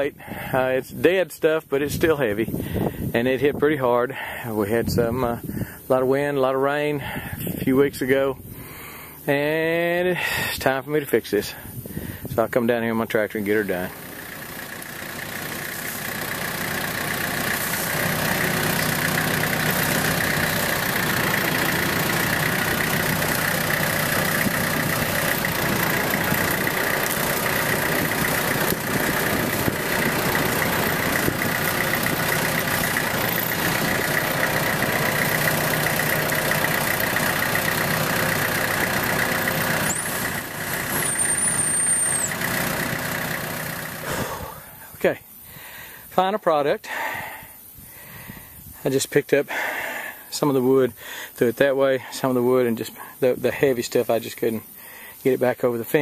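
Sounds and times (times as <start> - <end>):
tractor engine running: 0.0 - 46.1
brief high squeal: 41.0 - 42.3.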